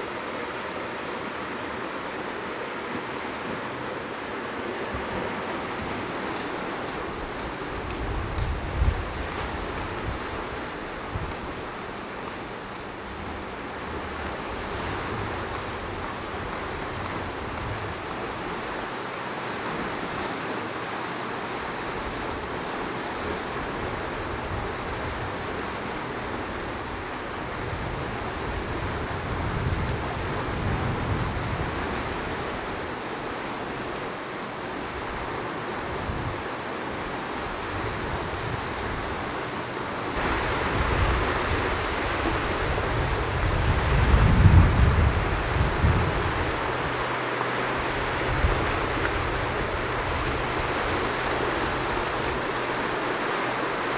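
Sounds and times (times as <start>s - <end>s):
sea surf: 0.0s - 53.9s
wind buffeting microphone: 5.0s - 18.8s, 23.2s - 33.0s, 40.1s - 53.9s.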